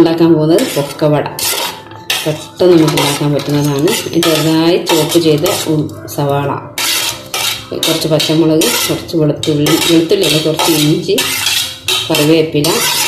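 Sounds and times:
ceramic plate scraping steel bowl: 0:00.5 - 0:05.8, 0:06.8 - 0:13.0.

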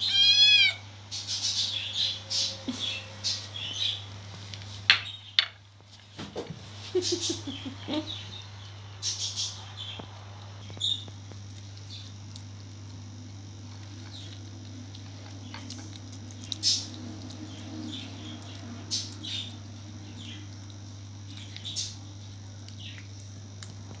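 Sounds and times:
steady low hum: 0:00.0 - 0:24.0
kitten chewing wet food: 0:09.7 - 0:24.0.

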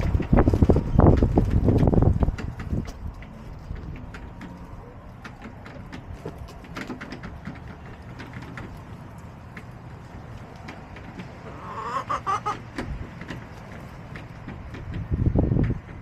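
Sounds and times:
hen clucking: 0:11.0 - 0:13.3.

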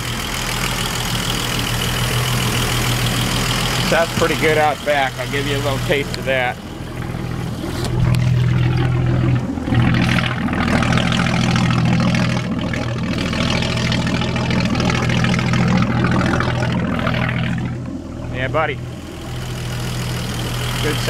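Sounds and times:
boat engine idling: 0:00.0 - 0:21.0
cooling water spilling from exhaust: 0:00.0 - 0:21.0.

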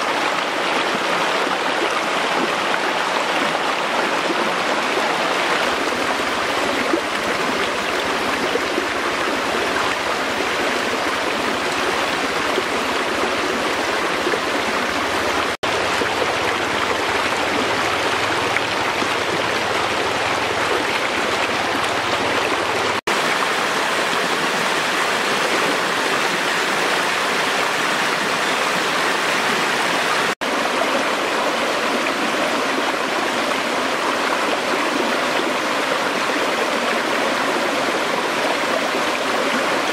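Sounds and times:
stream rushing over rocks: 0:00.0 - 0:39.9.

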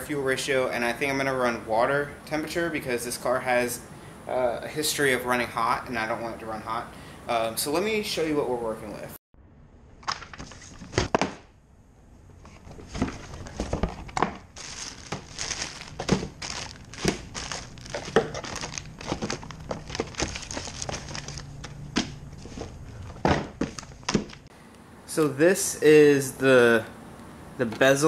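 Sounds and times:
plastic packaging crinkling: 0:12.8 - 0:21.8
handling knocks: 0:21.9 - 0:24.4.

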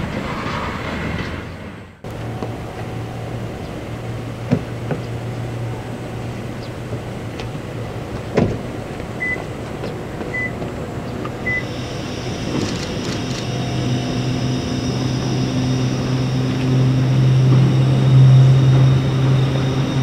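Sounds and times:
steady low hum: 0:02.0 - 0:20.0
short high beeps: 0:11.5 - 0:11.7.

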